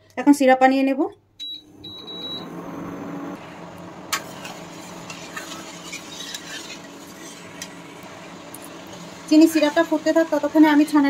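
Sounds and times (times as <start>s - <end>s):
metal spoon scraping a pan: 4.2s - 7.8s.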